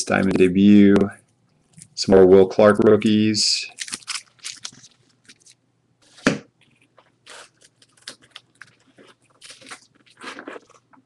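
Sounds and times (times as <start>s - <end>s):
plastic-sleeved cards rustling: 3.7s - 10.7s.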